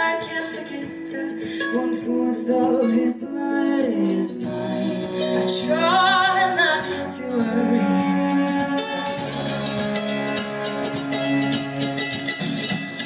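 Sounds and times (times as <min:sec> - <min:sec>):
person singing with vibrato: 0:00.0 - 0:09.0
guitar accompaniment: 0:00.0 - 0:13.0.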